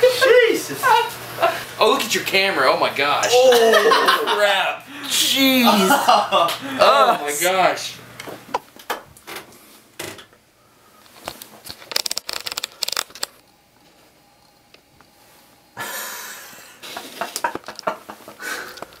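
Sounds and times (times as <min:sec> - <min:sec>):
camera handling clicks and rustling: 0:11.2 - 0:13.4.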